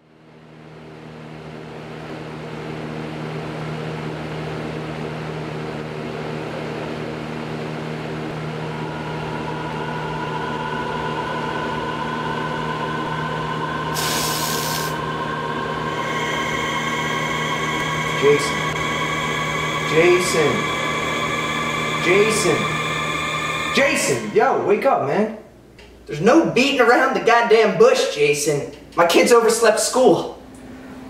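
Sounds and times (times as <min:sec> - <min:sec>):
steady low drone: 0:04.7 - 0:25.5
higher steady tones: 0:06.8 - 0:25.5
aerosol can spraying: 0:14.0 - 0:15.0.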